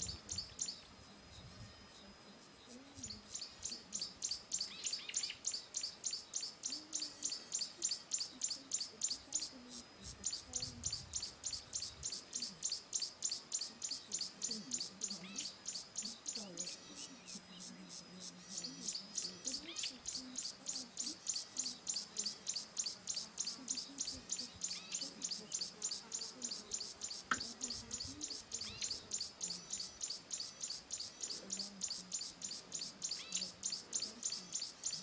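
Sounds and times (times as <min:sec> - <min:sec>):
faint low hum: 0:00.0 - 0:35.0
falling whistled bird chirps: 0:03.0 - 0:09.5
high-pitched bird chirp: 0:18.5 - 0:35.0.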